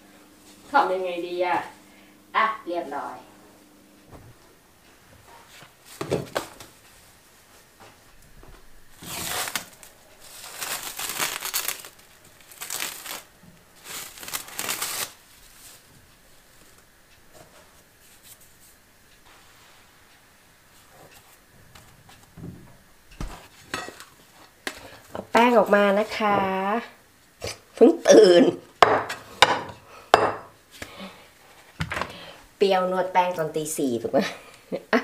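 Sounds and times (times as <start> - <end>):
tea towel rustling and crinkling: 9.0 - 16.8.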